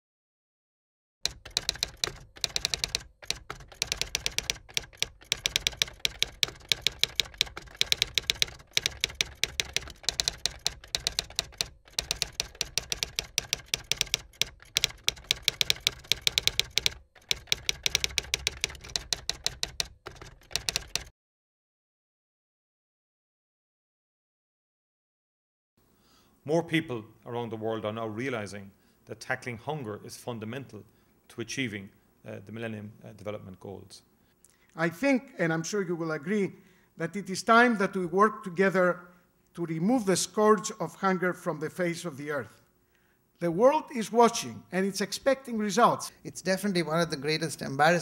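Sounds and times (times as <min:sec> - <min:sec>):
typewriter keys clacking: 0:01.2 - 0:21.1.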